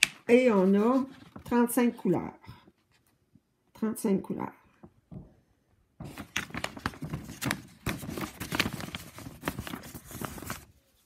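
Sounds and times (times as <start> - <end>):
paper rustling and crinkling: 0.0 - 3.1, 6.0 - 11.0.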